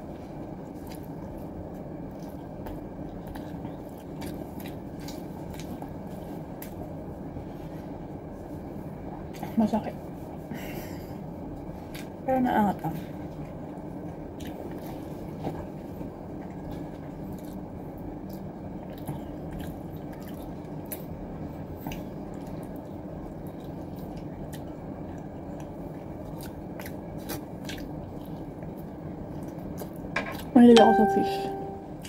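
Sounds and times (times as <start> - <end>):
low background hum: 0.0 - 32.0
chewing and biting food: 0.5 - 7.0, 13.3 - 21.2, 21.8 - 30.5.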